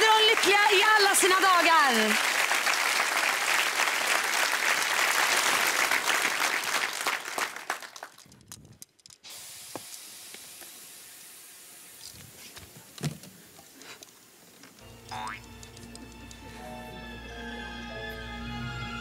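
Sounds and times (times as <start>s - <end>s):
audience applauding: 0.0s - 8.2s
faint steady hiss: 9.1s - 17.1s.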